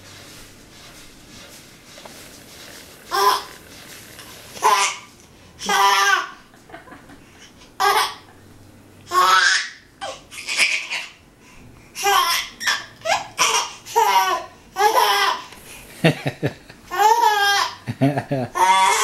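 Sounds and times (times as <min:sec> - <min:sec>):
baby laughing: 0:03.1 - 0:03.5, 0:04.6 - 0:06.5, 0:07.8 - 0:08.3, 0:09.1 - 0:11.2, 0:12.0 - 0:15.4, 0:18.4 - 0:19.0.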